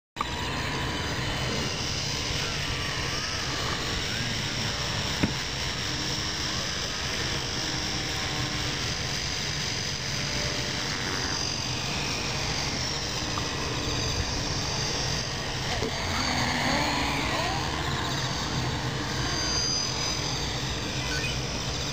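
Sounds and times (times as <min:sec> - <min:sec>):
rc helicopter motor whirring: 0:00.2 - 0:21.9.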